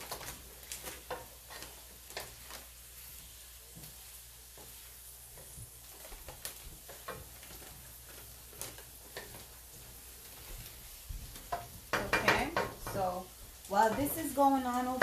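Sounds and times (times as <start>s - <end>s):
faint sizzle: 0.0s - 15.0s
spatula scraping and tapping wok: 0.0s - 15.0s.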